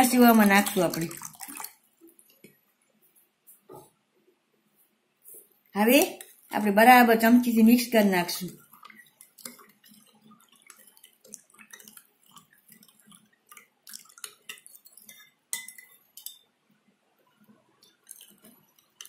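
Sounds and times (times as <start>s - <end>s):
liquid sloshing: 0.0s - 2.6s, 8.1s - 16.5s, 17.2s - 19.0s
spoon clinking against glass bowl: 14.5s - 16.4s.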